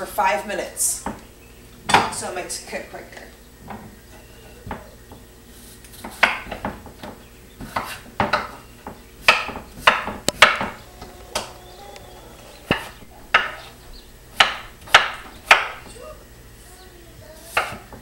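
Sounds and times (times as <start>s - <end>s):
knife knocking on wooden board: 12.6s - 13.7s.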